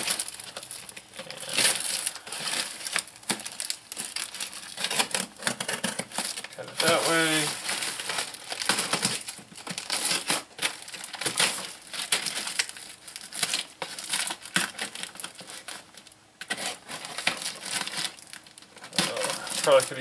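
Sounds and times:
cardboard crinkling: 0.0s - 20.0s.

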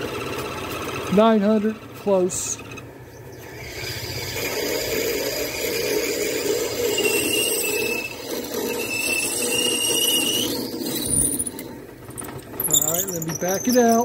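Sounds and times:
wavering high squeal: 3.4s - 11.8s, 12.6s - 14.0s
drill cutting plastic on lathe: 3.4s - 14.0s.

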